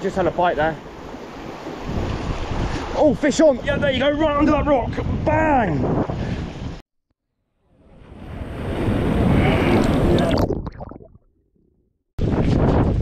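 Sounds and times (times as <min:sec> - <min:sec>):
wind buffeting microphone: 0:01.6 - 0:06.8, 0:12.2 - 0:13.0.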